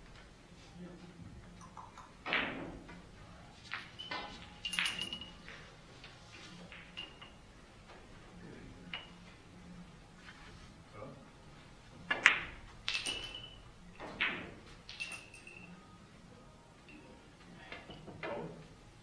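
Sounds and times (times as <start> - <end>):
billiard balls clicking: 1.6 - 8.2, 12.1 - 15.7.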